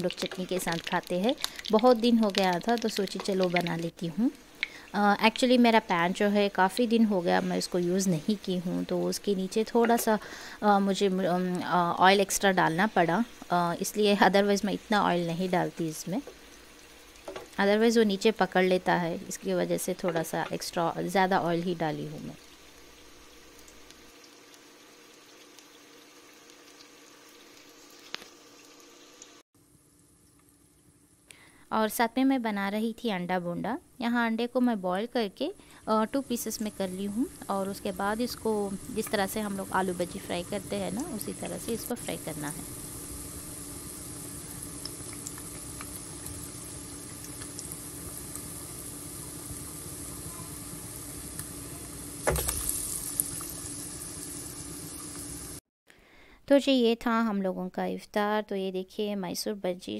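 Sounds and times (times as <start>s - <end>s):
oil popping: 0.0s - 4.0s, 44.8s - 48.6s, 51.3s - 53.8s
batter sizzling in oil: 0.0s - 31.3s, 35.6s - 55.6s.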